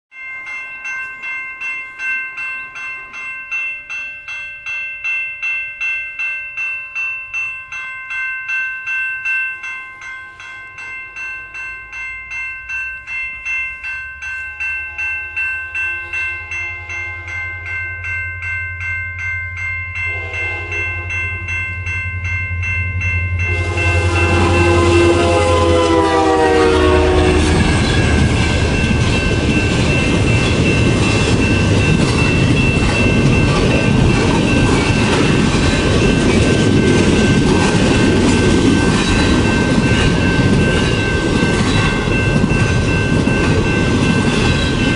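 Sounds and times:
level-crossing bell ringing: 0.1s - 44.9s
diesel locomotive rumbling: 13.8s - 44.9s
train horn: 14.8s - 15.4s, 16.0s - 17.5s, 20.0s - 21.3s, 23.4s - 28.4s.

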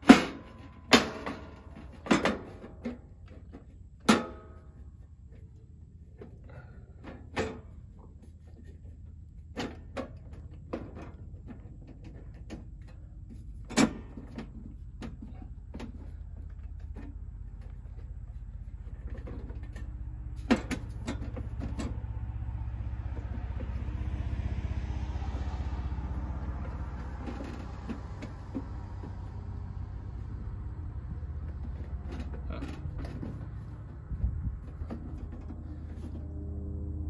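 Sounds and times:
steady low hum: 0.0s - 37.0s
car passing by: 21.5s - 32.0s, 35.5s - 37.0s.

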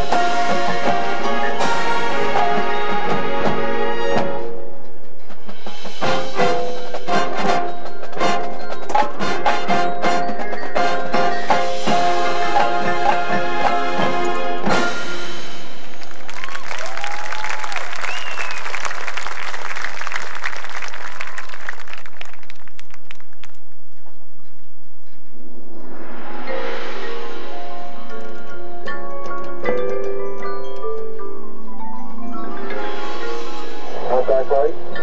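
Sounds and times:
marching band music: 0.0s - 16.5s, 32.5s - 35.0s
marimba: 6.0s - 15.0s, 26.5s - 35.0s
audience applause: 15.8s - 23.7s.

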